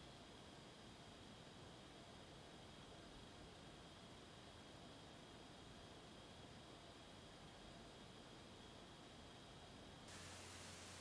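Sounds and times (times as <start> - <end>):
faint steady hiss: 0.0 - 11.0
thin high whine: 10.1 - 11.0.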